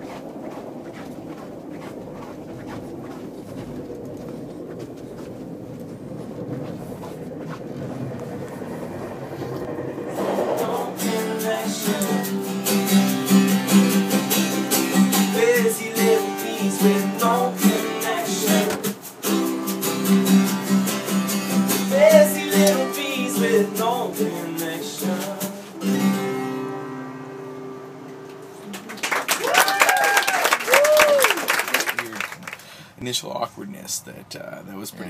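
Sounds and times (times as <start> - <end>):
acoustic guitar strumming: 9.8 - 28.9
person singing: 10.2 - 13.6, 14.8 - 19.0, 21.7 - 26.2.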